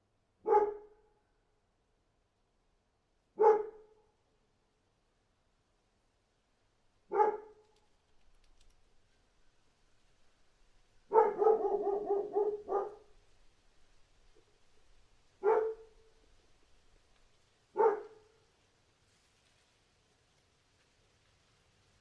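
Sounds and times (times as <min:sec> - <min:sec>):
dog barking: 0:00.4 - 0:01.0, 0:03.4 - 0:04.0, 0:07.1 - 0:07.6, 0:11.1 - 0:13.1, 0:15.4 - 0:16.1, 0:17.7 - 0:18.4.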